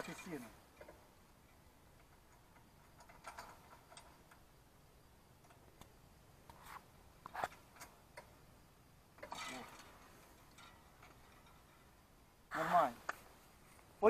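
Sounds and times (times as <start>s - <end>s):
metal chain clinking: 0.0s - 4.4s, 9.2s - 12.0s.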